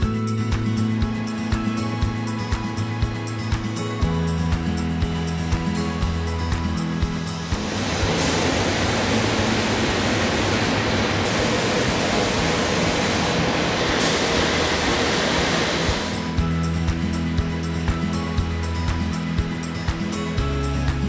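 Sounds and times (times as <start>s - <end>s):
paint spray gun hissing: 7.5s - 16.3s.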